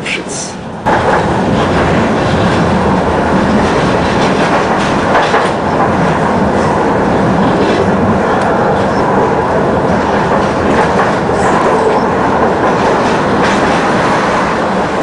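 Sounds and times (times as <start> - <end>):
tram wheels on rails: 0.0 - 15.0.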